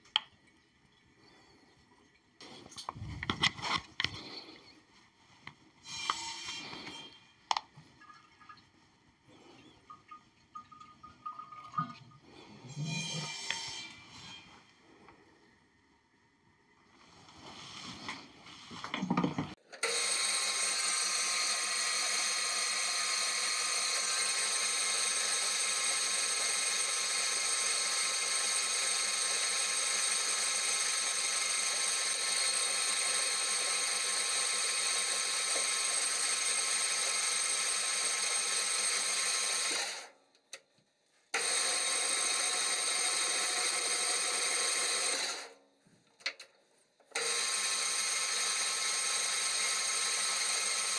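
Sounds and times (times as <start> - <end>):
metal lathe gear whine: 12.7 - 14.6, 19.9 - 40.0, 47.2 - 50.9.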